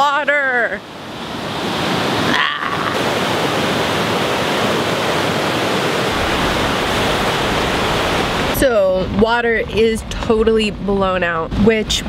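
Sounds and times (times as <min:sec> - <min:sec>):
whitewater river rushing: 0:00.0 - 0:09.2.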